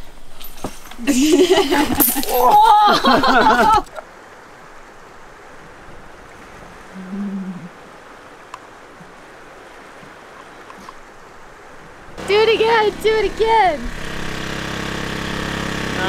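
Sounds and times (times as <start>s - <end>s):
person speaking: 12.2s - 13.9s.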